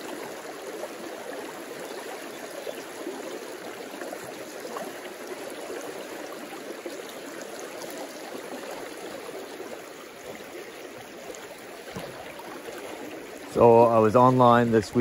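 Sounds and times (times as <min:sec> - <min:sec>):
water rushing over rocks: 0:00.0 - 0:15.0.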